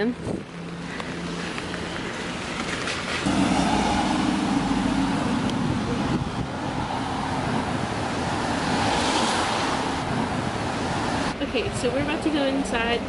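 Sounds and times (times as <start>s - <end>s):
city traffic noise: 0.0s - 13.0s
tyres hissing on wet road: 1.3s - 7.6s, 8.5s - 10.1s.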